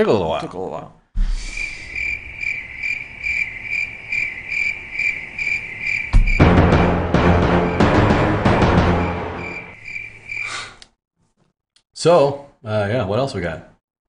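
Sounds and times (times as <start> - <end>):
cricket chirping: 1.2 - 10.8
loud music with heavy drums: 6.2 - 9.6.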